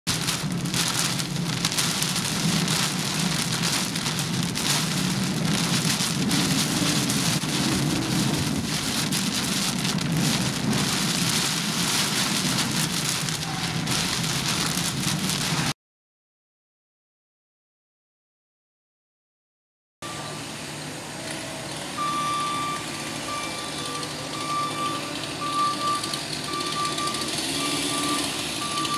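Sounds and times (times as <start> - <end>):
heavy rain pelting a car: 0.0 - 15.8, 20.1 - 28.9
wind gusts buffeting a car: 0.1 - 15.7.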